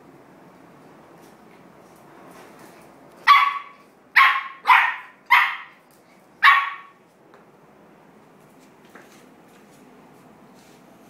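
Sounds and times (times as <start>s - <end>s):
puppy yapping: 3.2s - 5.8s, 6.4s - 7.0s.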